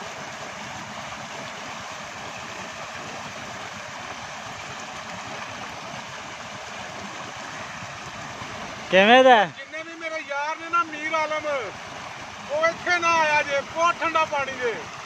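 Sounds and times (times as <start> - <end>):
water gushing into a tank: 0.0 - 15.0.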